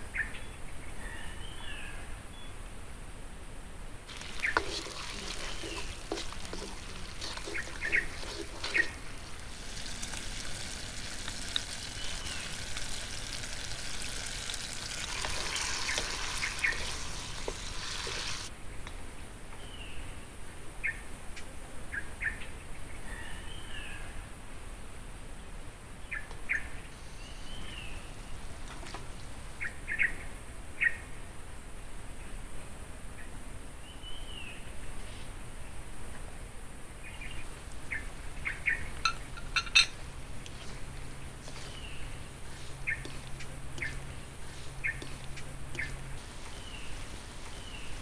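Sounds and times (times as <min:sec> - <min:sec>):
birds chirping: 0:04.1 - 0:18.5, 0:27.3 - 0:29.7, 0:37.2 - 0:48.0
food sizzling in a wok: 0:04.1 - 0:18.5, 0:37.2 - 0:48.0.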